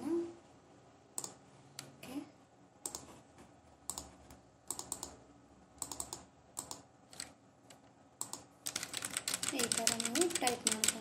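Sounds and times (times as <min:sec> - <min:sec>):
keyboard and mouse clicking: 0:01.2 - 0:01.9, 0:02.8 - 0:03.1, 0:03.8 - 0:05.2, 0:05.8 - 0:11.0.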